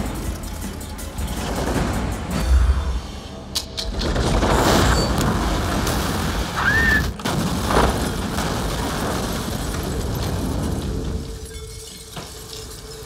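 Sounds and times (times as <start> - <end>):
explosion blast with rumbling: 4.1 - 11.4.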